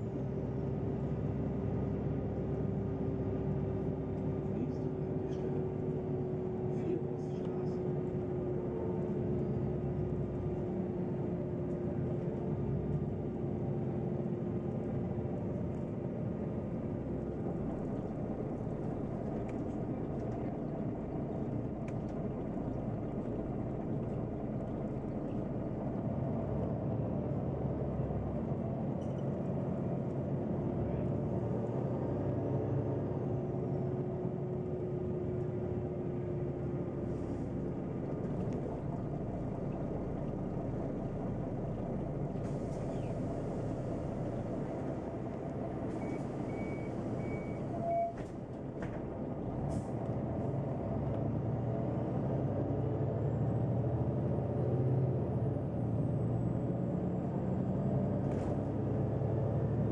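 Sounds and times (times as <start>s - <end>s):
bus engine and road rumble: 0.0s - 59.9s
constant whine: 14.4s - 51.7s.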